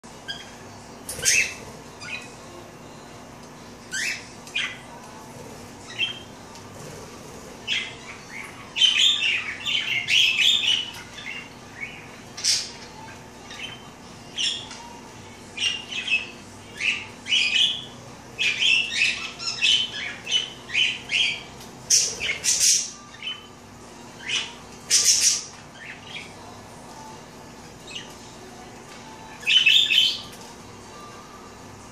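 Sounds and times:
budgerigars chirping and squawking: 0.2s - 2.4s, 5.8s - 6.4s, 7.1s - 14.8s, 15.6s - 23.5s, 24.2s - 26.3s.

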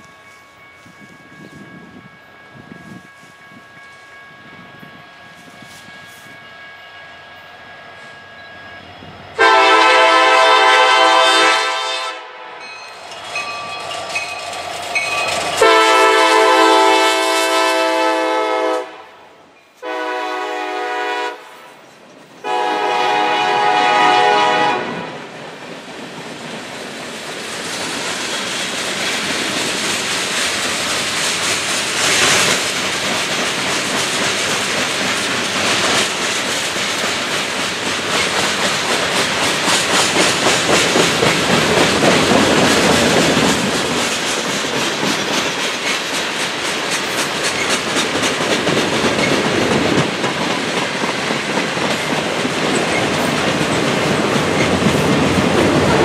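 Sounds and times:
train air horn blasts: 9.4s - 12.7s, 15.6s - 21.8s, 22.4s - 25.2s, 55.8s - 56.0s
train wheels clickety-clack: 12.8s - 17.6s, 24.8s - 56.0s.

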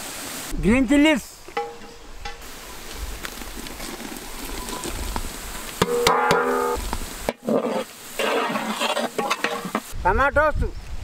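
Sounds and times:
onions sizzling in oil: 4.5s - 10.0s.

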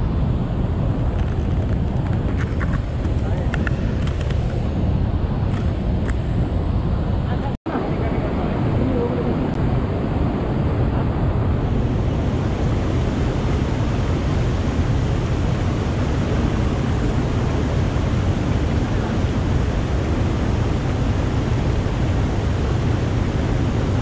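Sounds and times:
stream rushing over boulders: 10.5s - 24.0s.

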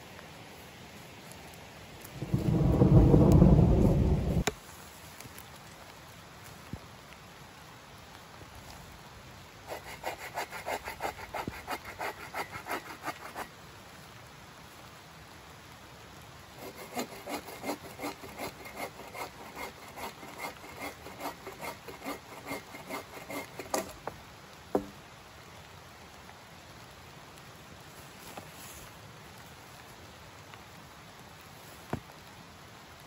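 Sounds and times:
hand saw cutting wood: 9.7s - 13.5s, 16.6s - 24.1s.

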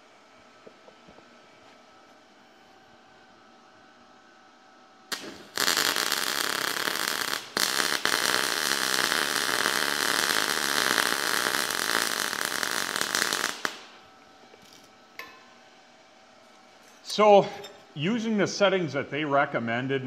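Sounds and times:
welding arc: 5.1s - 15.3s.

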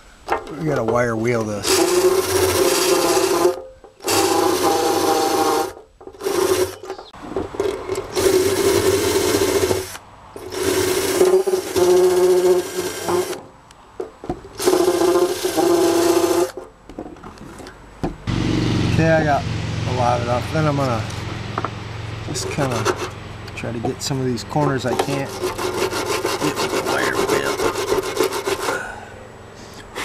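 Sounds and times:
wire brush rasping on metal: 1.4s - 6.9s, 8.1s - 13.4s, 14.6s - 16.6s, 22.3s - 23.2s, 24.6s - 28.8s
drill motor hum: 1.6s - 6.9s, 7.6s - 13.4s, 14.6s - 16.6s.

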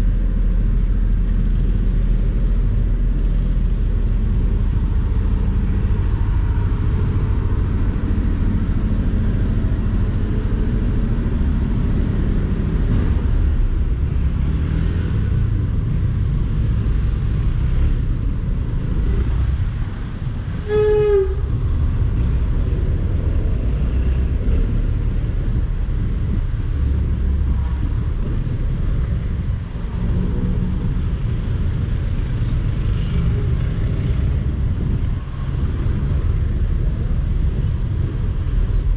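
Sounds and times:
traffic noise: 0.0s - 38.9s
vehicle horn honk: 20.6s - 21.4s.

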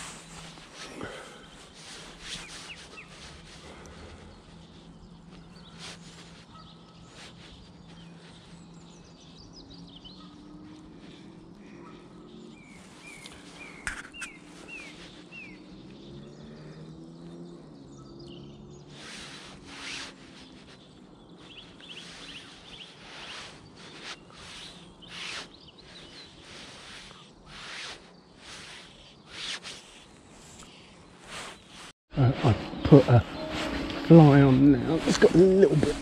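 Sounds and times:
small birds chirping: 0.0s - 36.0s
fly line clicks and rustles: 12.7s - 16.0s, 18.9s - 31.9s.

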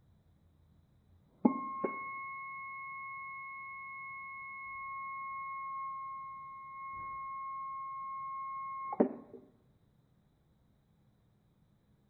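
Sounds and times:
steady buzzer tone: 1.5s - 9.0s.

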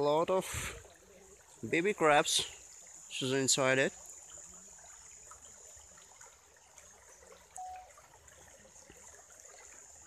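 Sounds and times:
faint steady hiss: 0.0s - 10.0s
short steady tone: 7.6s - 7.9s.

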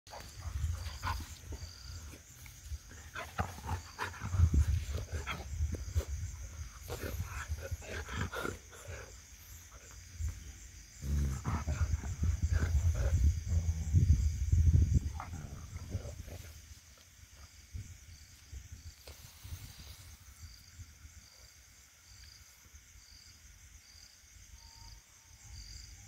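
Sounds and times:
dog grunting and growling: 6.6s - 10.0s, 11.0s - 14.3s, 15.0s - 16.5s.

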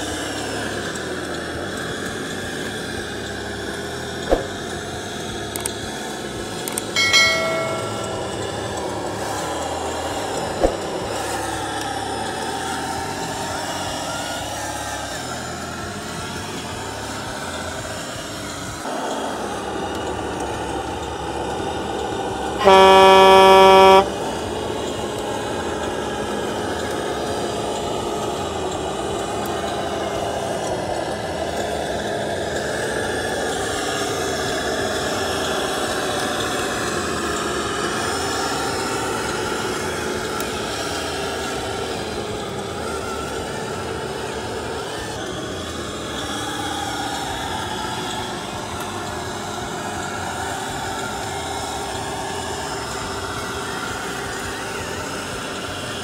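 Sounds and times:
model truck motor running: 0.0s - 7.0s, 8.1s - 56.0s
truck air horn blast: 7.0s - 8.4s, 22.5s - 24.7s.

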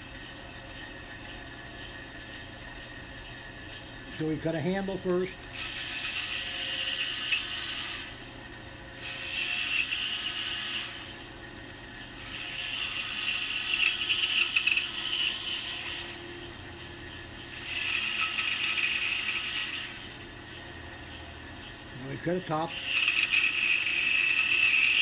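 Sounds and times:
scroll saw cutting wood: 4.1s - 8.3s, 9.0s - 11.2s, 12.2s - 16.2s, 17.5s - 20.1s, 22.1s - 25.0s.

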